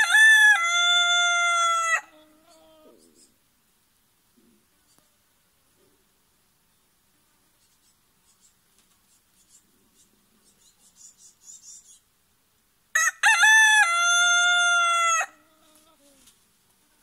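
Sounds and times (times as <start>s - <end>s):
rooster crowing: 0.0s - 2.2s, 12.9s - 15.4s.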